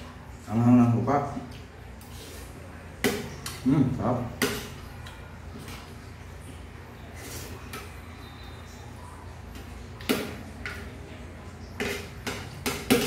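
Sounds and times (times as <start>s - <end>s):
cutlery scraping a plate: 11.8s - 13.0s.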